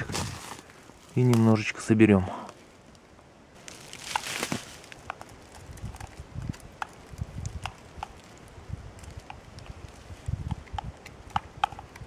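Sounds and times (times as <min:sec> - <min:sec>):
small clicks and dull knocks: 0:05.0 - 0:08.4, 0:09.0 - 0:12.0.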